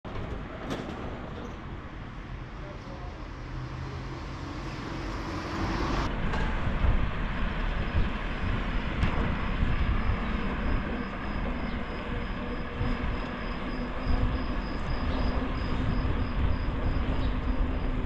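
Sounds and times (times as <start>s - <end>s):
street noise: 0.0s - 18.0s
passing vehicle rumble: 1.1s - 18.0s.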